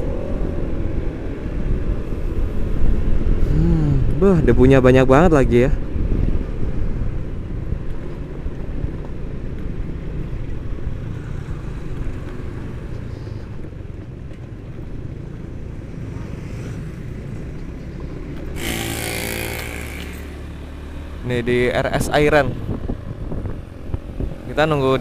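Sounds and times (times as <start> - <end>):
wind and road rumble: 0.0 - 25.0
motorcycle engine cruising: 5.8 - 25.0.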